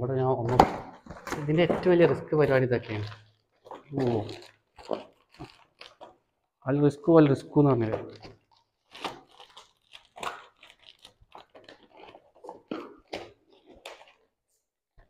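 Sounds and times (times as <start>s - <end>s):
plastic packing material crinkling: 1.0s - 6.3s, 7.8s - 14.3s.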